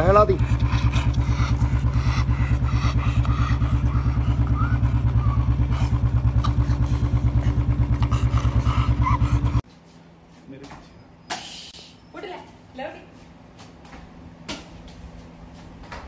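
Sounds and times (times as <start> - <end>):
motorcycle engine idling: 0.0 - 9.6.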